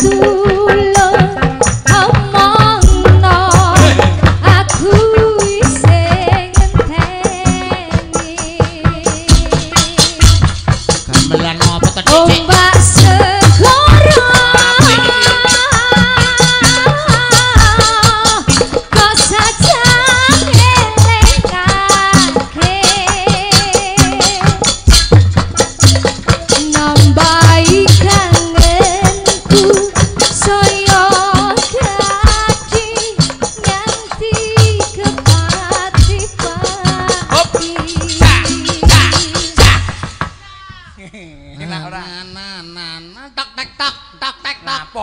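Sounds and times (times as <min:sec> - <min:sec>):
woman singing with vibrato: 0:00.0 - 0:10.6, 0:12.0 - 0:24.9, 0:26.2 - 0:41.0
deep drum thumps: 0:00.0 - 0:31.0
fast percussion beat: 0:00.0 - 0:40.8.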